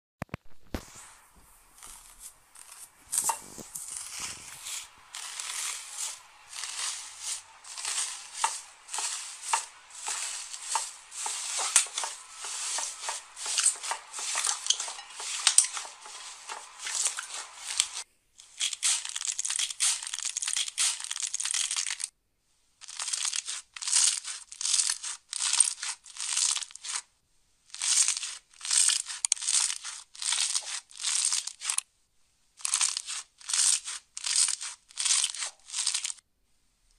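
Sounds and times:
slime squishing and crackling: 0:01.8 - 0:22.1, 0:22.8 - 0:27.0, 0:32.6 - 0:36.2.

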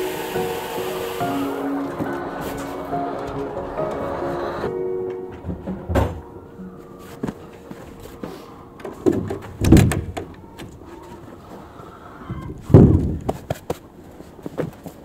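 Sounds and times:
sliding door rolling: 0:00.0 - 0:06.3
door banging shut: 0:05.4 - 0:06.3, 0:09.0 - 0:10.3.

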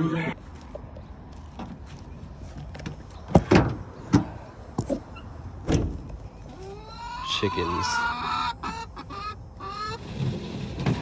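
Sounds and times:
truck tailgate clunks and knocks: 0:02.8 - 0:04.9, 0:05.6 - 0:06.1.

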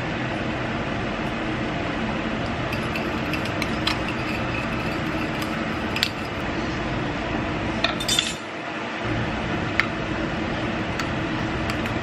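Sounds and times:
background hum: 0:00.0 - 0:12.0
metal spoon stirring and clinking: 0:02.7 - 0:06.4, 0:07.9 - 0:08.4.

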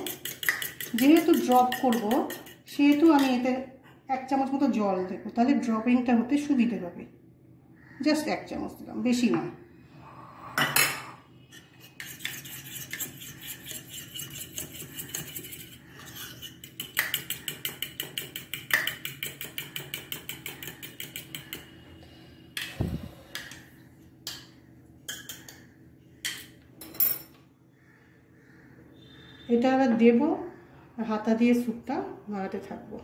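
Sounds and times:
spoon clinking against bowl: 0:00.0 - 0:03.4, 0:12.0 - 0:21.6.

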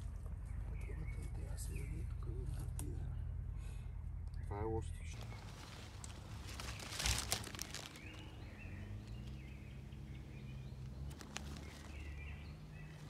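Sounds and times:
small birds chirping: 0:00.0 - 0:13.0
undergrowth rustling and snapping: 0:05.2 - 0:13.0.

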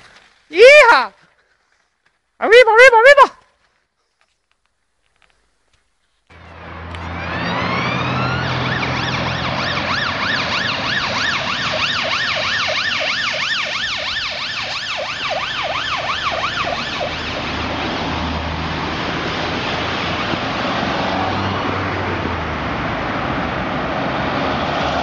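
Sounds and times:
road traffic noise: 0:04.2 - 0:25.0
ambulance siren yelping: 0:07.0 - 0:18.9.

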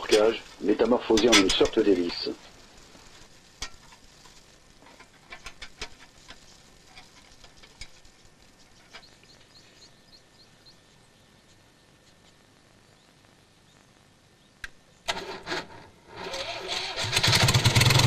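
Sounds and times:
bird chirping: 0:08.2 - 0:15.1.

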